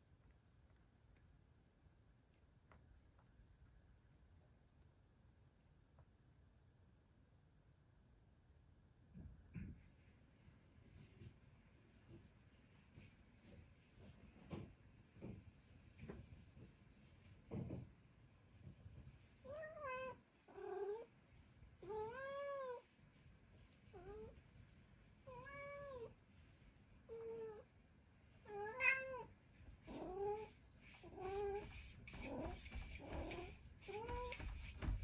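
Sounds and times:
cat meowing: 0:19.5 - 0:21.1, 0:21.8 - 0:22.8, 0:25.3 - 0:26.1, 0:28.5 - 0:29.3.

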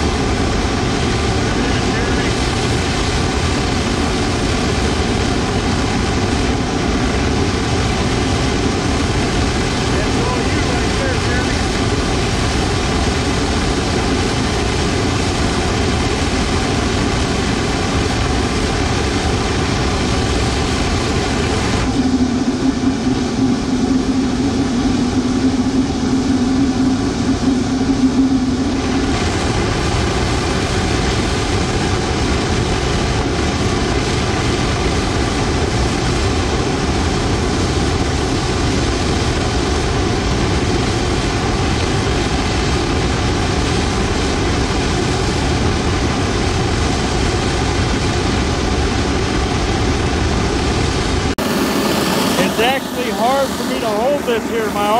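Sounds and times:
wavering low rumble and hum: 0:00.0 - 0:54.9
gas burner flame rushing: 0:23.7 - 0:54.9.

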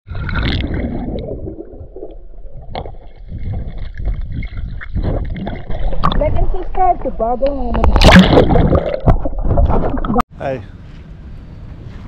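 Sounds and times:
underwater bubbles gurgling: 0:00.1 - 0:06.4, 0:07.8 - 0:10.2.

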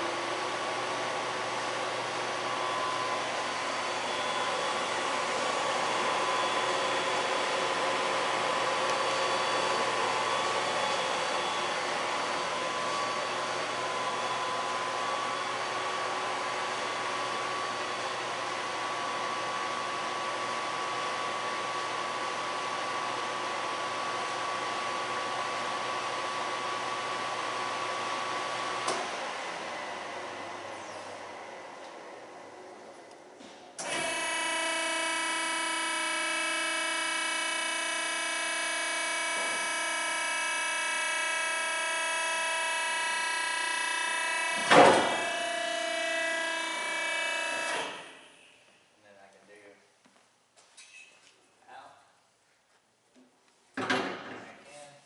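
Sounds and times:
spiral mixer whining: 0:00.0 - 0:18.7, 0:33.8 - 0:48.2.

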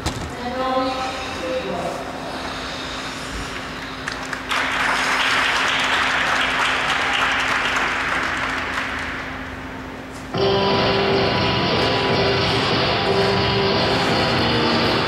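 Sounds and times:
audience applauding: 0:04.0 - 0:09.6.

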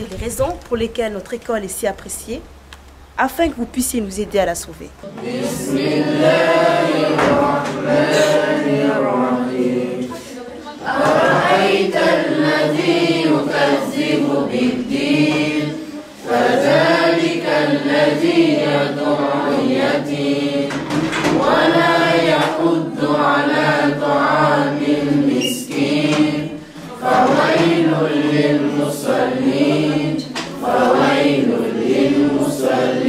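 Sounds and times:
students chanting in unison: 0:05.0 - 0:33.0.

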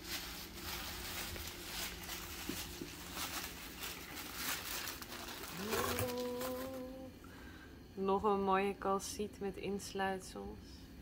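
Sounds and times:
packing paper crinkling: 0:00.0 - 0:07.0.

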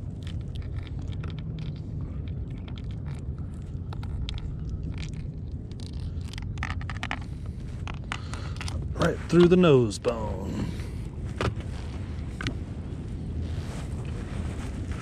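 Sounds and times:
clicks and rustles of handling: 0:00.0 - 0:10.3
low rumble: 0:00.0 - 0:15.0.

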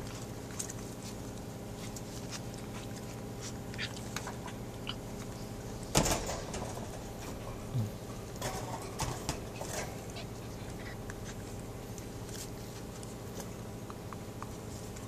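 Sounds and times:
scuffling and handling noise: 0:00.0 - 0:04.4, 0:08.4 - 0:13.8
steady low hum: 0:00.0 - 0:15.0.

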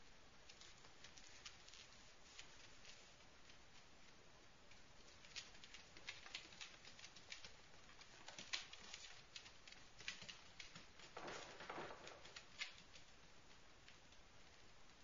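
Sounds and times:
puppy claws clicking on wooden floor: 0:05.0 - 0:13.1.

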